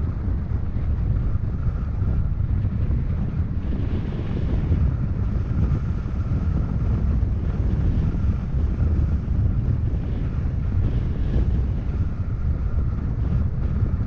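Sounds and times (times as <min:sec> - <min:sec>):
vehicle rumbling on dirt road: 0:00.0 - 0:14.0
wind buffeting microphone: 0:00.0 - 0:14.0.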